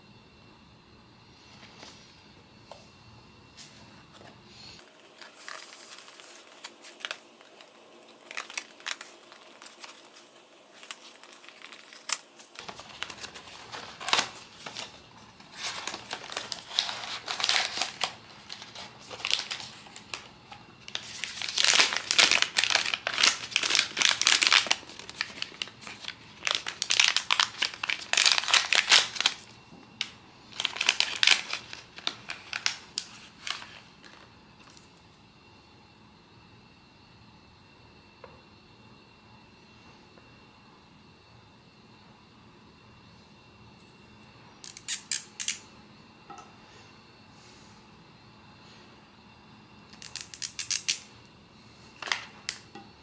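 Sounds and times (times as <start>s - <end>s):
foil bag crinkling and tearing: 4.8s - 34.1s
paper rustling: 4.9s - 20.3s, 20.9s - 29.4s.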